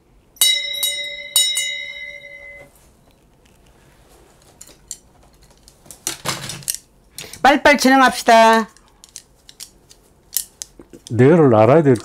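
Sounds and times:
hand bell ringing: 0.4s - 2.7s.

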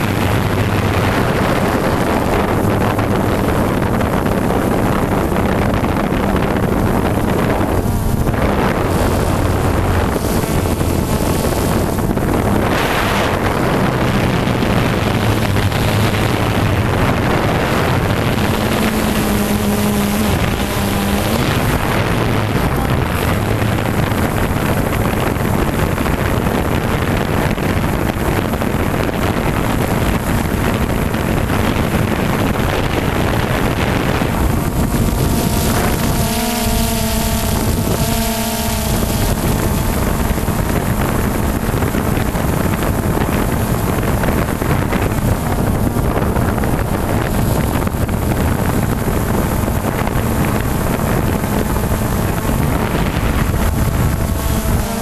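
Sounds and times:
drone propellers running: 0.0s - 55.0s
steady hum tones: 0.0s - 55.0s
wind rushing over microphone: 0.0s - 55.0s.

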